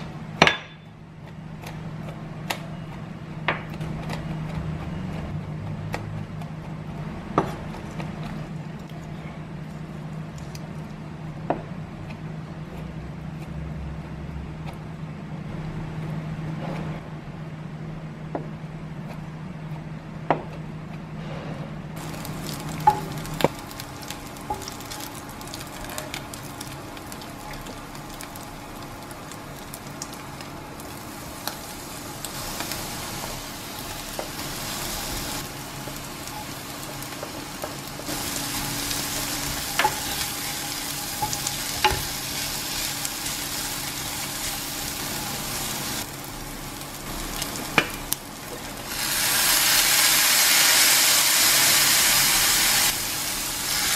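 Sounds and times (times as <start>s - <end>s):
food sizzling in a frying pan: 22.0s - 53.9s.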